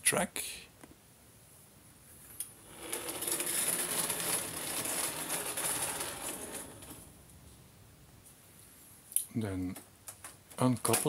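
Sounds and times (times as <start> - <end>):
model train motor whirring: 2.6 - 7.1
wheels clattering over track: 2.6 - 7.2.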